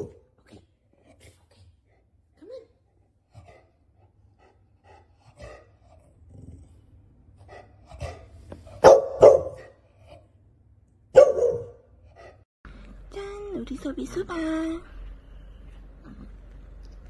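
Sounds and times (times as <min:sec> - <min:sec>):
dog barking: 0:08.8 - 0:09.8, 0:11.1 - 0:11.9.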